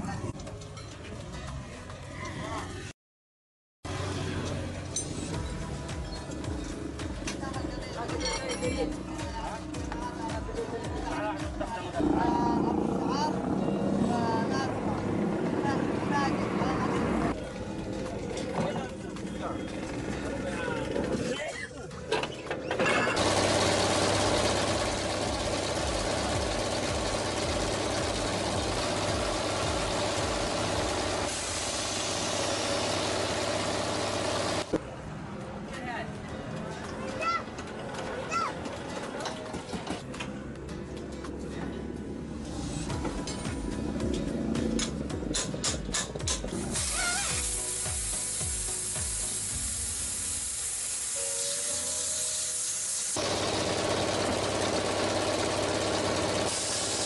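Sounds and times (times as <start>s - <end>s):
engine idling: 23.2s - 34.7s, 53.2s - 57.0s
compressed air hissing: 28.9s - 33.3s, 46.5s - 53.3s, 56.4s - 57.0s.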